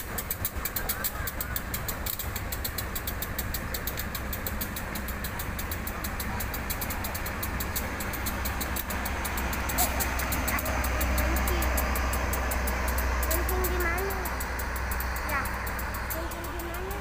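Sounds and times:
diesel locomotive engine rumble: 0.0 - 17.0
train rolling past: 0.0 - 17.0.

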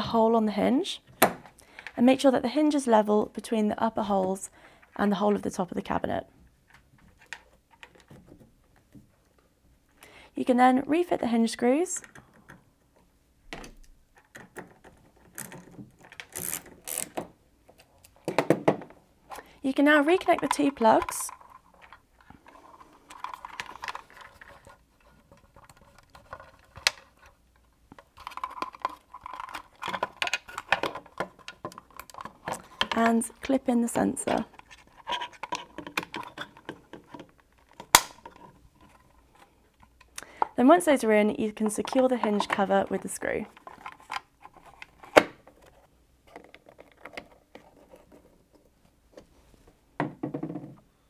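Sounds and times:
plastic scraping: 19.3 - 33.6, 34.2 - 40.6
plastic plugs clicking together: 20.0 - 22.3, 34.2 - 38.4.

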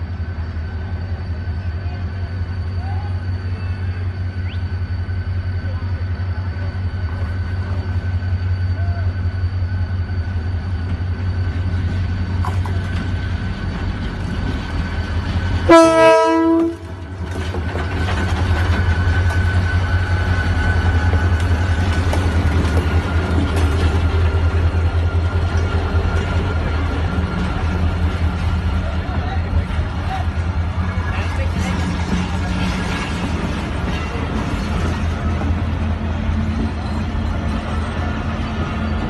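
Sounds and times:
diesel locomotive rumbling: 0.0 - 39.0
multi-tone train horn blast: 15.6 - 17.0.

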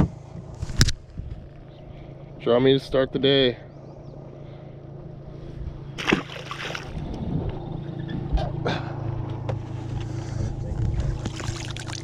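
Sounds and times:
steady low hum: 0.0 - 12.0
fish splashing into river: 6.0 - 7.0, 11.3 - 12.0.

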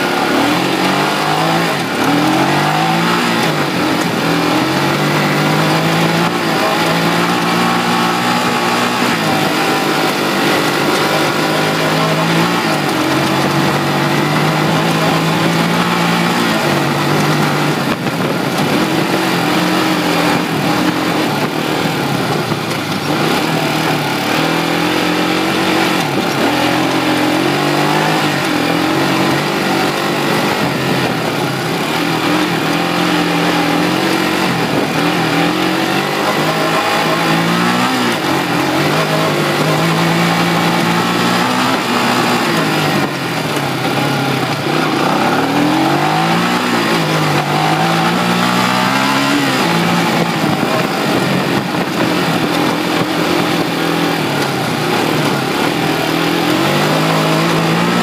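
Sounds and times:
quad engine revving: 0.0 - 58.0.

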